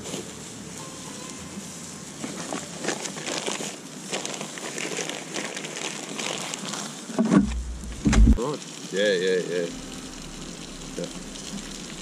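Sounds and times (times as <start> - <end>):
paper bag rustling: 0.0 - 8.4.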